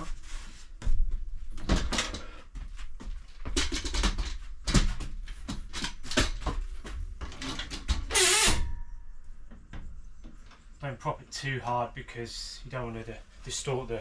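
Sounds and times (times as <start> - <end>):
clicks knocks and rubbing: 3.3 - 8.5
squeaking scrape: 8.1 - 8.7.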